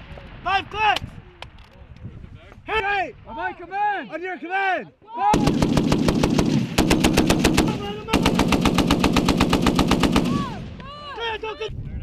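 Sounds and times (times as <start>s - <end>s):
heavy machine gun bursts: 5.4s - 10.5s.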